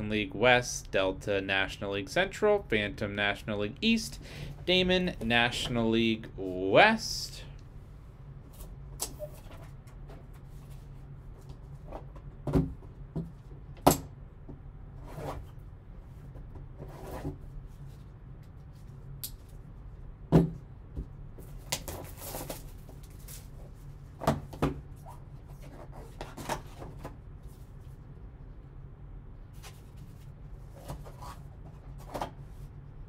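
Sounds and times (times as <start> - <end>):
cardboard and paper rustling: 21.6 - 23.6.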